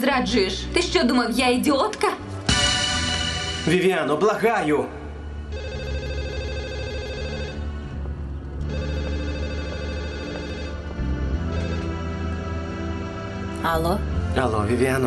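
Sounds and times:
telephone ringing: 5.4 - 12.5.

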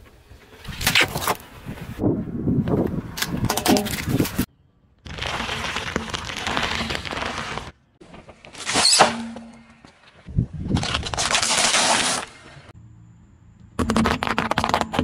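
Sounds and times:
sharp crack: 8.5 - 9.8.

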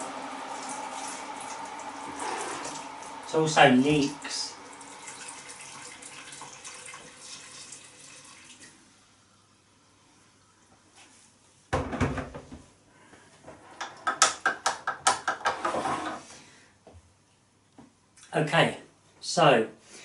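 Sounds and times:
water pouring into metal pot: 4.6 - 9.0.

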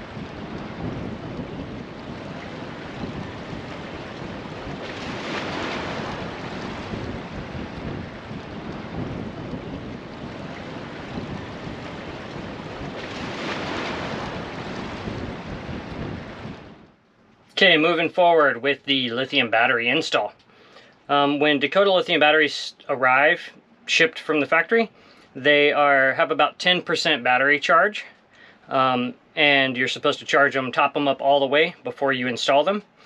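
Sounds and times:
waves breaking: 0.0 - 17.0
wind: 0.0 - 33.0.

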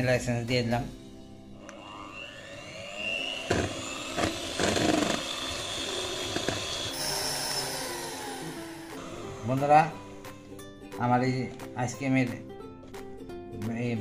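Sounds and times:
electric hand mixer running: 1.6 - 10.2.

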